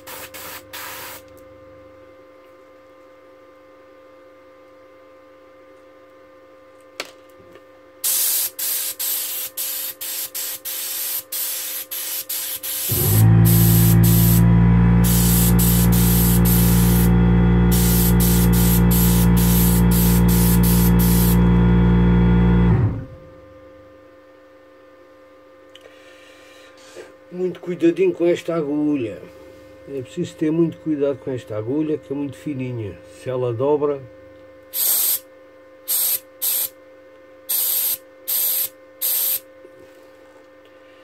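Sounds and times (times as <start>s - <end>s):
airbrush hissing in bursts: 0.0s - 1.2s, 8.0s - 21.5s, 34.8s - 35.2s, 35.9s - 36.7s, 37.5s - 39.4s
air compressor motor humming: 8.0s - 23.6s, 34.7s - 35.2s, 37.5s - 39.4s.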